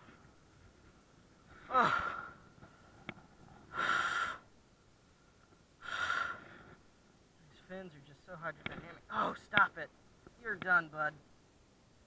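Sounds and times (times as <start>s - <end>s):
man breathing hard: 1.5s - 4.5s, 5.8s - 6.8s.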